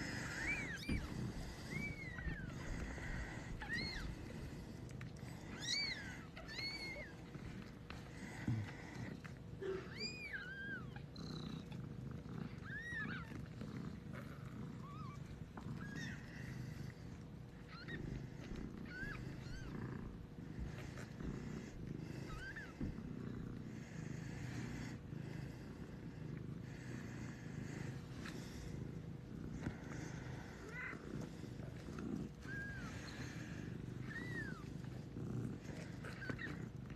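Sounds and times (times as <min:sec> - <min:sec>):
kittens mewing: 0:00.0 - 0:04.6, 0:05.4 - 0:07.3, 0:08.3 - 0:11.8, 0:17.6 - 0:23.0, 0:29.2 - 0:36.8
cat purring: 0:00.0 - 0:36.9.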